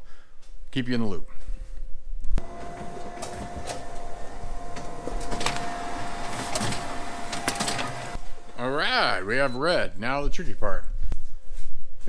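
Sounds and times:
sharp clicks of sheets feeding: 2.4 - 8.4
duplicator machine whine: 2.4 - 9.9.

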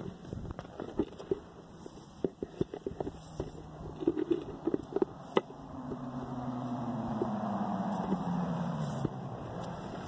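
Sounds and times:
vehicle approaching: 3.2 - 10.0.

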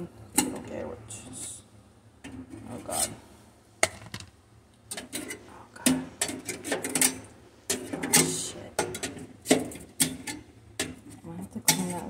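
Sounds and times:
dishware and utensils rattling: 4.9 - 12.0.

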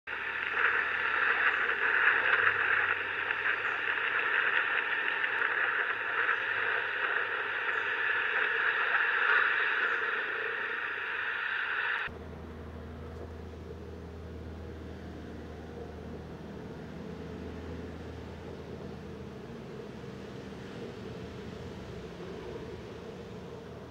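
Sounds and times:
loud static hiss: 0.1 - 12.1.

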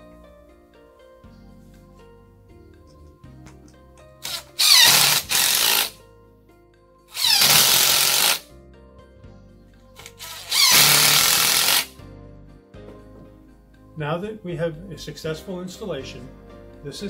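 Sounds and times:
cordless drill driving screws: 4.2 - 6.0, 7.1 - 8.4, 10.1 - 11.9.

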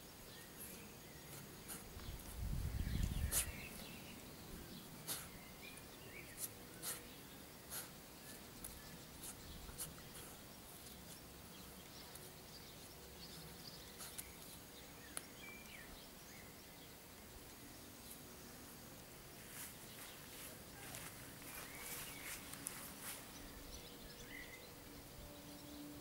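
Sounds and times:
faint bird chirps: 0.0 - 18.2, 19.5 - 26.0
dog paws scratching soil: 0.5 - 4.2, 5.0 - 15.3, 19.3 - 24.5.

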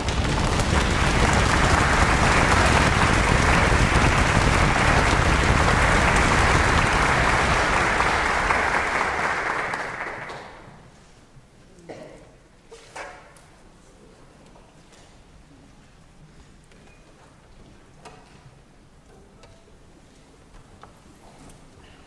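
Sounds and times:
audience applauding: 0.0 - 10.8.

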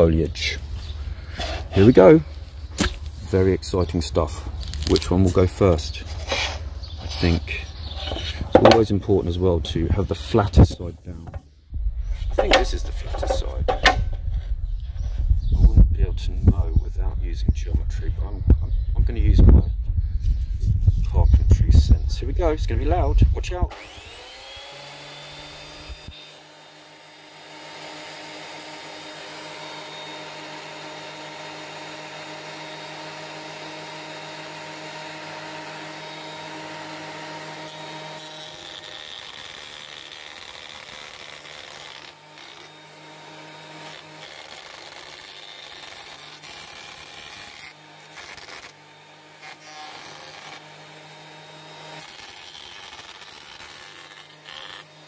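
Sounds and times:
cutterhead shaving wood: 0.0 - 3.6, 4.3 - 11.5, 12.2 - 14.4, 23.7 - 55.0
planer motor whine: 23.7 - 55.0.

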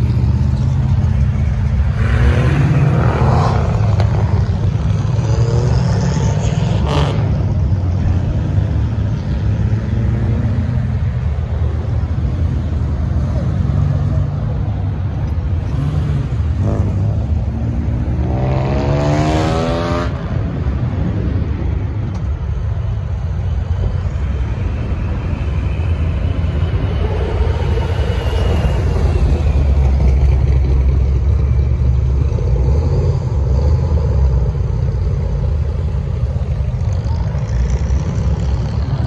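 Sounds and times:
cars with loud exhausts passing: 0.0 - 39.0.

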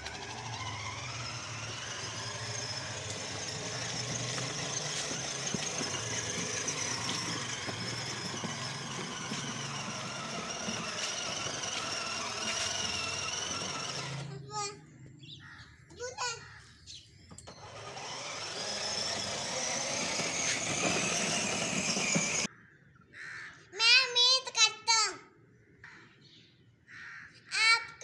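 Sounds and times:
plastic wheels rolling on concrete: 0.0 - 14.4, 17.4 - 22.5
toy car electric motor whining: 0.0 - 14.5, 17.3 - 22.5.

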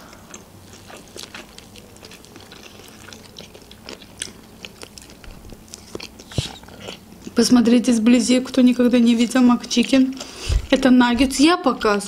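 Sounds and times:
chewing crunchy sandwich: 0.0 - 7.4.

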